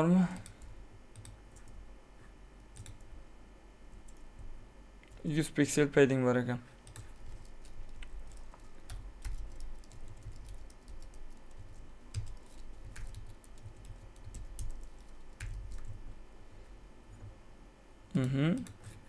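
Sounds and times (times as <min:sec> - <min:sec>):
computer keyboard typing: 0:00.2 - 0:01.8, 0:02.7 - 0:03.1, 0:03.9 - 0:04.3, 0:06.8 - 0:16.1, 0:18.2 - 0:19.0.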